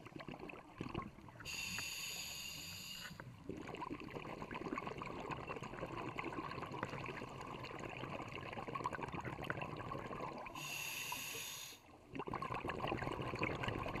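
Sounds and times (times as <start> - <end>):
underwater exhaled bubbles: 0.0 - 14.0
regulator breath hiss: 1.5 - 3.2, 10.6 - 11.8.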